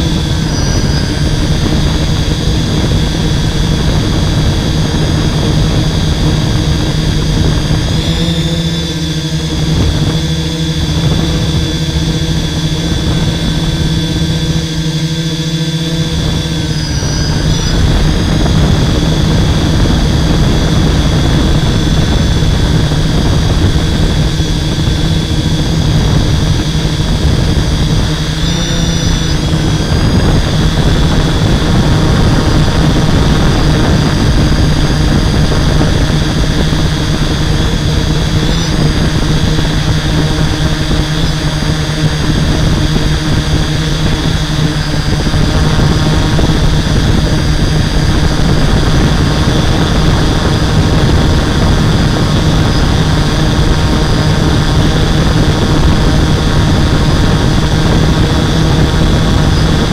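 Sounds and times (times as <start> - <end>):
drone motors humming and whining: 0.0 - 59.9.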